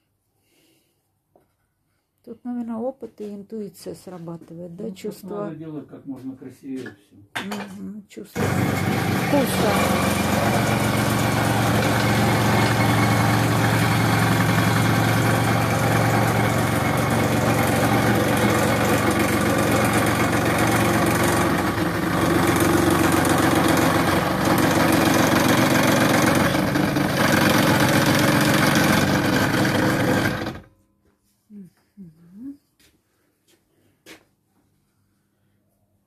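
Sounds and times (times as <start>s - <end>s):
scroll saw cutting wood: 8.4s - 30.7s.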